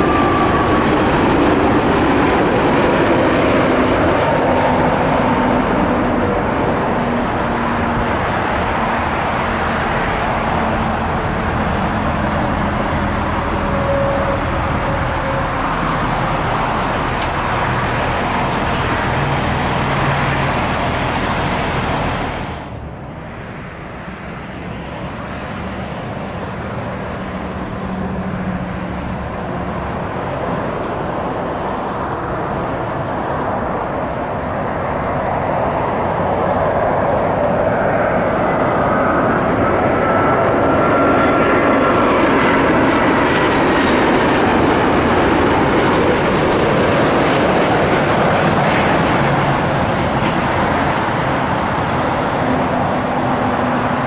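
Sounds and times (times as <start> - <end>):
engine whine sliding down: 0.0 - 23.4
jet engines roaring past: 0.0 - 54.0.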